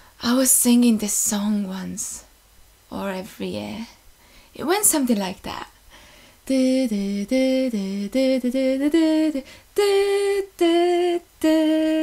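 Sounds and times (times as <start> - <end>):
woman singing unaccompanied: 2.9 - 12.0.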